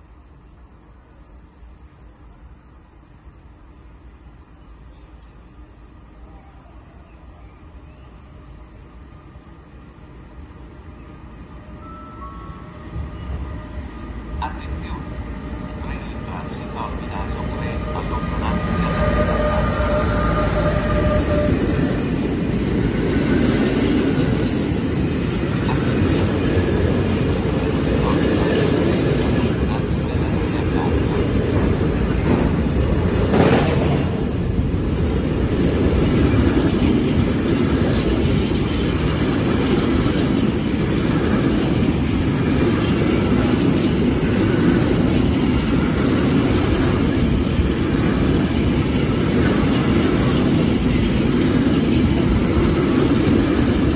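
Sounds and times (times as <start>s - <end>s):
crickets chirping: 0.0s - 53.9s
electric locomotive whine: 0.0s - 53.9s
freight train rumble: 7.7s - 53.9s.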